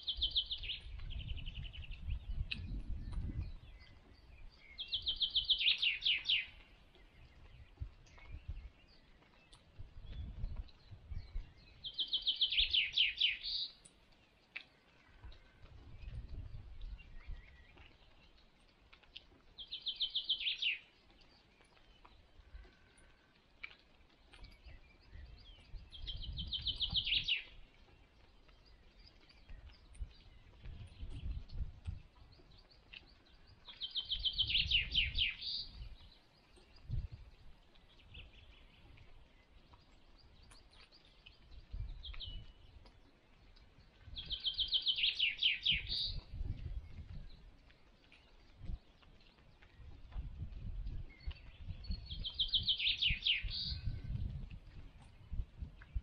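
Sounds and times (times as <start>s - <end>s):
songbird trilling: 4.7s - 6.6s, 33.7s - 35.8s, 44.2s - 46.2s, 51.4s - 54.1s.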